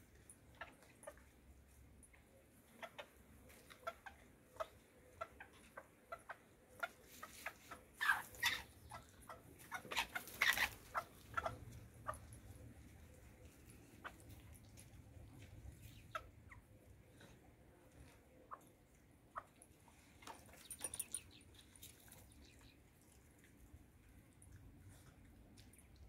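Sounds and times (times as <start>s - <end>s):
hens clucking: 2.7s - 14.4s, 15.4s - 16.7s.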